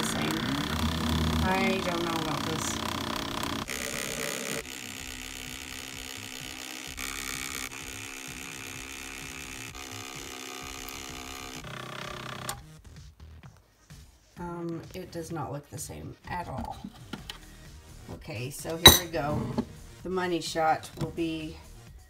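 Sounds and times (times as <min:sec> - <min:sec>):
milk frother whirring: 0:00.0 - 0:12.6.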